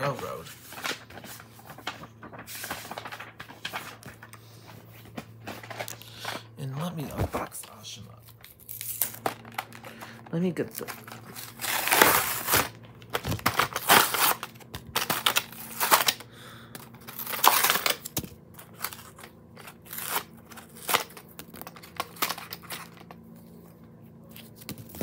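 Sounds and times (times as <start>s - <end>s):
packaging tearing and crinkling: 8.3s - 16.2s, 16.8s - 23.2s.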